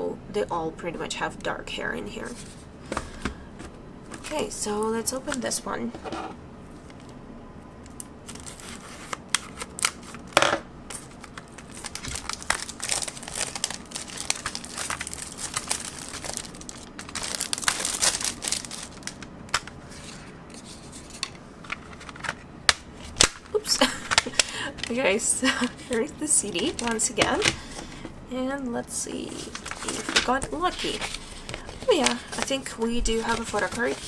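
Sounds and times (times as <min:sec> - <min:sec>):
plastic wrap crinkling and tearing: 0:07.9 - 0:19.8, 0:29.3 - 0:34.0.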